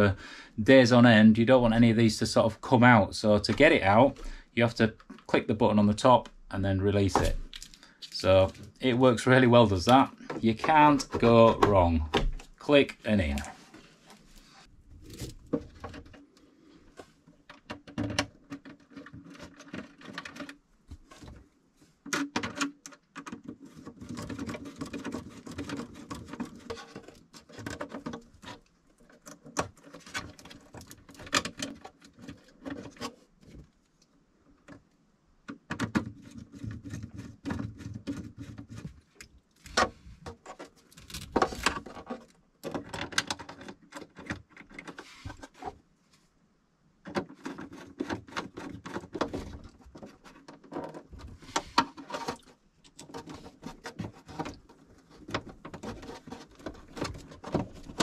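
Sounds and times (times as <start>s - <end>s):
cables rustling: 6.9s - 34.7s, 36.1s - 46.3s, 47.2s - 58.0s.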